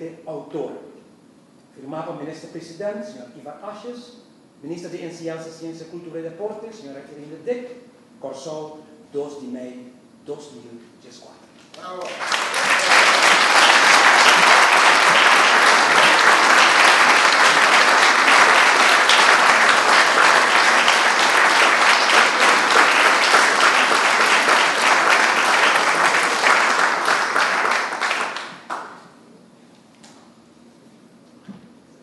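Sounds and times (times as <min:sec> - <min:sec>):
audience clapping: 0:11.6 - 0:29.2.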